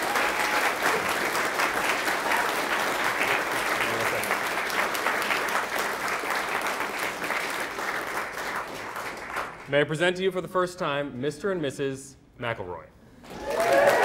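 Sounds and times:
crowd applauding: 0.0s - 9.7s, 13.3s - 14.0s.

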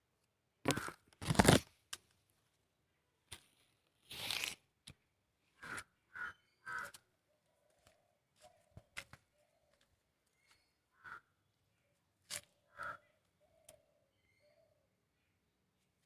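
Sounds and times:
bird calling: 5.6s - 7.0s, 7.7s - 11.4s, 12.6s - 14.8s.

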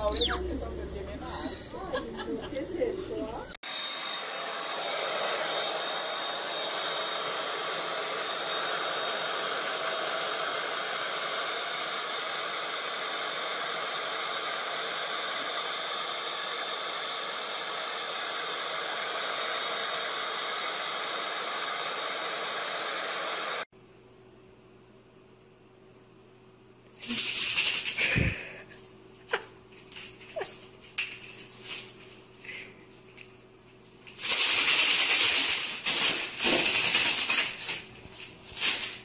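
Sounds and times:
hair dryer running: 3.6s - 23.7s.

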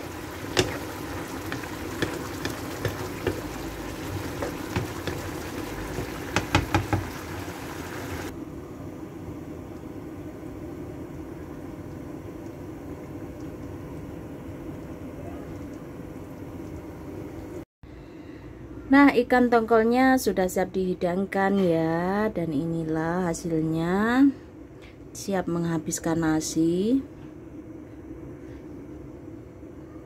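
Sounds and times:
curry bubbling in a frying pan: 0.0s - 8.4s.

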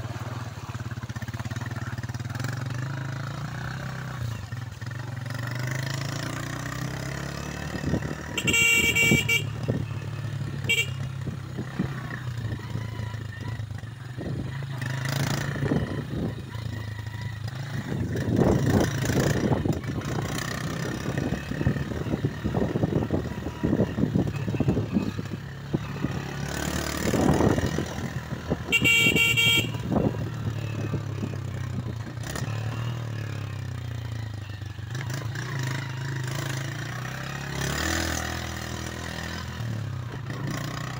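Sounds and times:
motorcycle engine running: 0.0s - 40.9s
horn beeping: 8.1s - 11.3s, 28.5s - 30.3s.

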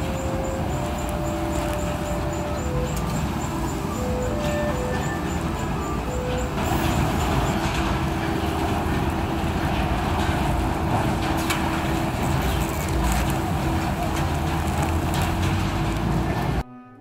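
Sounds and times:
conveyor machinery running: 0.0s - 16.6s
steady hum: 0.0s - 16.6s.

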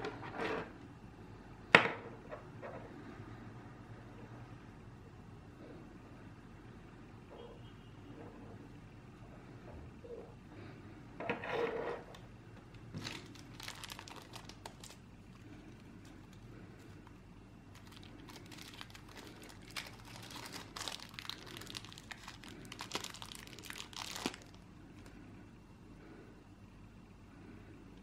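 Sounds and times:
plastic bags crinkling: 12.9s - 17.0s, 17.7s - 25.1s.

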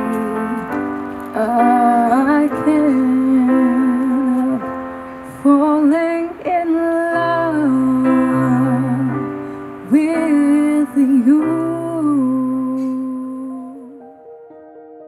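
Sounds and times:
woman singing slow song: 0.0s - 14.1s
soft musical accompaniment: 0.0s - 15.0s.

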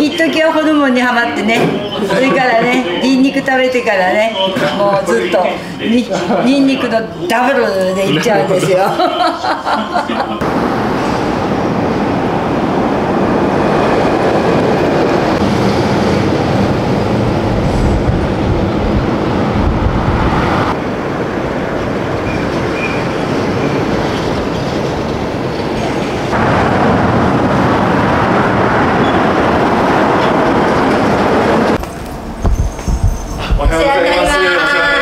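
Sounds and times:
outdoor wind: 0.0s - 35.0s
passing road traffic: 8.2s - 33.7s.

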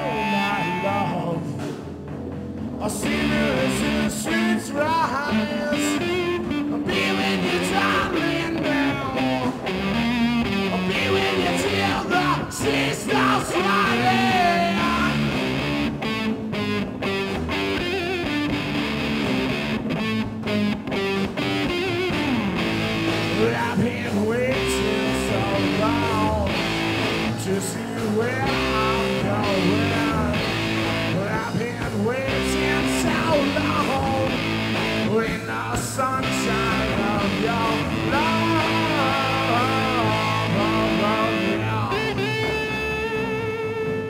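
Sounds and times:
electric guitar: 0.0s - 44.0s
rock band playing live: 0.0s - 44.0s.

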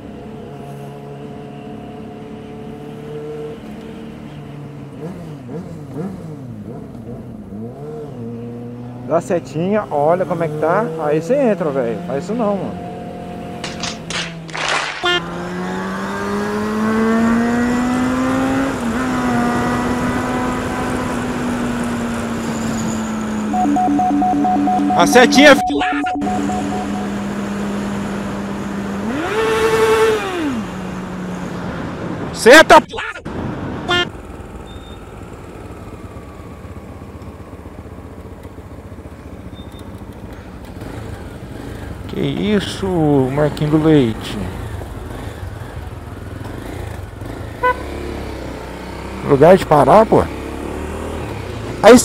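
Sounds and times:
motorcycle engine accelerating: 4.9s - 9.1s, 10.3s - 32.0s, 34.1s - 52.0s
motorcycle engine running: 26.2s - 29.6s, 34.1s - 42.4s.

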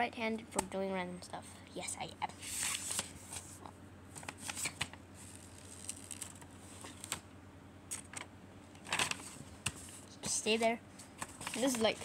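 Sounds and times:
paper rustling and sliding: 2.4s - 3.6s, 4.2s - 7.2s, 11.2s - 12.0s
paper crackles and taps: 11.2s - 12.0s.

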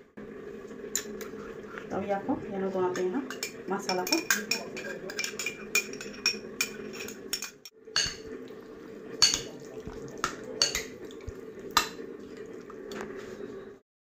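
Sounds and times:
metal spoon clinking in glass bowl: 3.3s - 8.2s.

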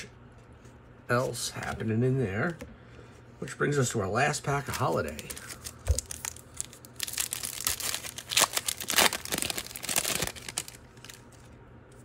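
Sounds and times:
card pack wrapper crinkling and tearing: 4.6s - 11.6s.

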